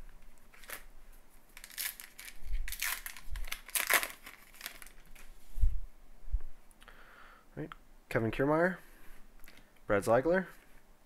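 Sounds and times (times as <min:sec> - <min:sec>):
foil wrapper crinkling and tearing: 0:00.5 - 0:00.9, 0:01.5 - 0:05.3.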